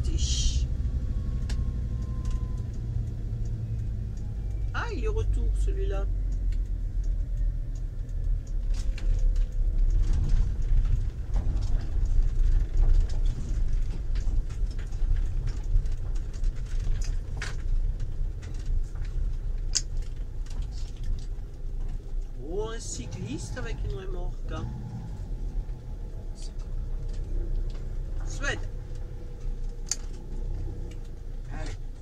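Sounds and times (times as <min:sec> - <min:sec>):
engine and road rumble: 0:00.0 - 0:32.0
light clicks and rattles: 0:00.0 - 0:32.0.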